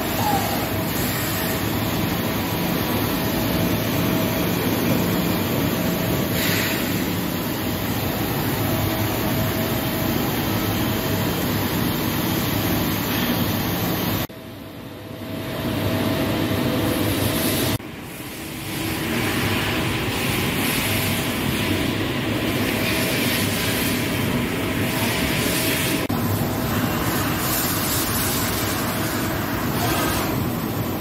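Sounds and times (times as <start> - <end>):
machining center running: 0.0 - 23.3.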